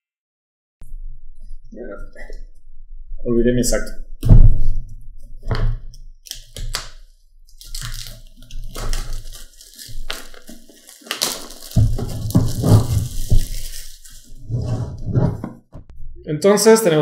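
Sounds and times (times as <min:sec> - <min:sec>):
shrink wrap tearing and crinkling: 0:06.2 - 0:14.6
box being handled bumps: 0:10.1 - 0:15.9.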